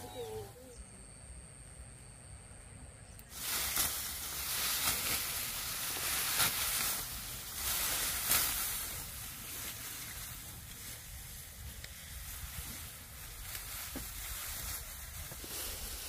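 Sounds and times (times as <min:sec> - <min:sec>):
sharp crackles: 0:03.2 - 0:16.0
dry stalks rustling: 0:03.3 - 0:16.0.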